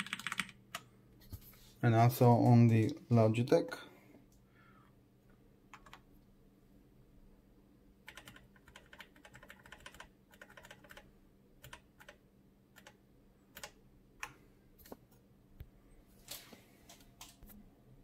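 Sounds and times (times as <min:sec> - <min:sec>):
typing on a mechanical keyboard: 0:00.0 - 0:00.9, 0:05.7 - 0:06.0, 0:08.1 - 0:12.2, 0:12.8 - 0:13.8.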